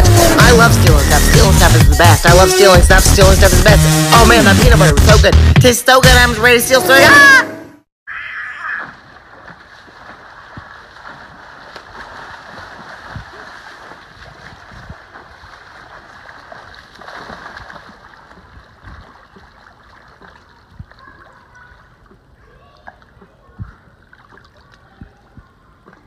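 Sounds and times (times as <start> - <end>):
water splashing from swimming: 8.6 - 26.0.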